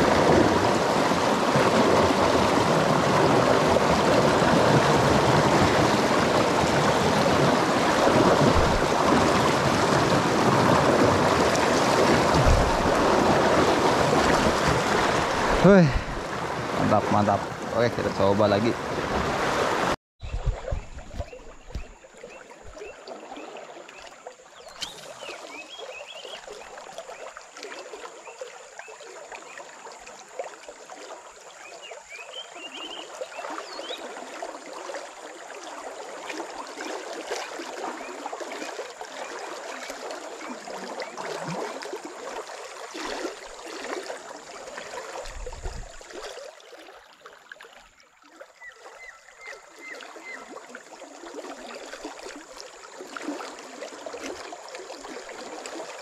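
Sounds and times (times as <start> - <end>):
river current rushing: 0.0 - 20.0.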